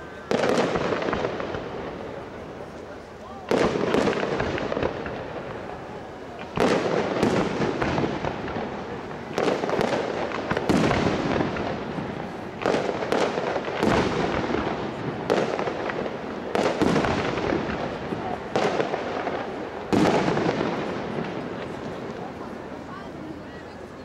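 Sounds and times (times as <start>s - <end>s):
firework bangs with crackle: 0.0s - 23.4s.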